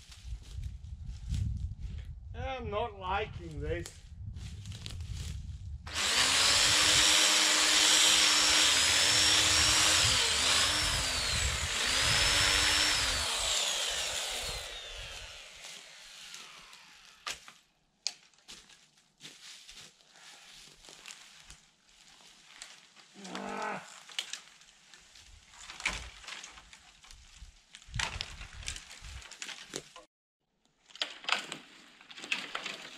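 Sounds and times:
chainsaw cutting wood: 5.9s - 17.4s.

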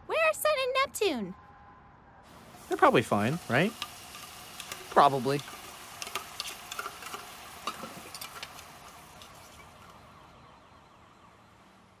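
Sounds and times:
food sizzling in frying: 2.3s - 10.2s
dishes and utensils clinking: 3.4s - 9.9s.

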